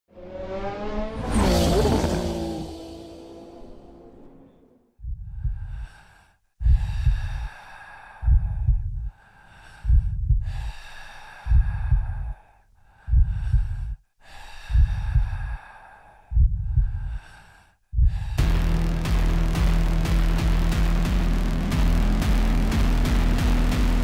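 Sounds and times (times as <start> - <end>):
heavy amplified breathing: 5.1 - 18.4
music: 18.4 - 24.0.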